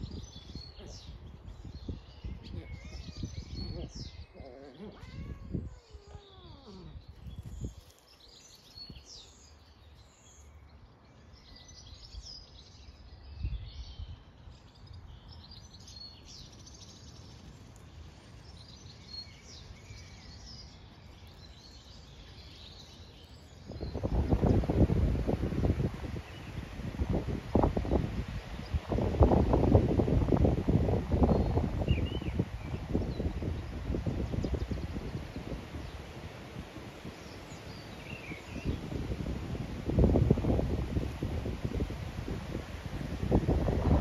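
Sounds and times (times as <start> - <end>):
wind buffeting microphone: 0.0 - 9.5, 18.5 - 44.0
small birds singing and chirping: 0.0 - 44.0.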